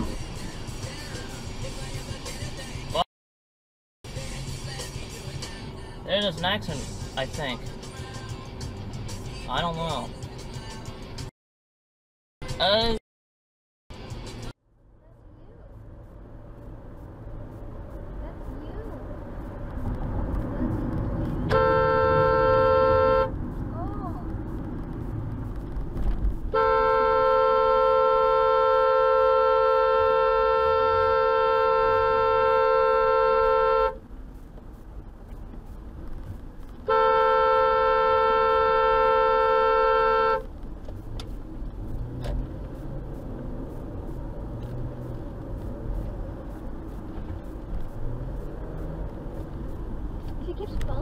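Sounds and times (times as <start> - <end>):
road noise inside moving car: 0.0 - 3.1, 4.1 - 11.3, 13.9 - 51.0
car horn honking: 21.2 - 23.6, 26.5 - 34.1, 36.8 - 40.5.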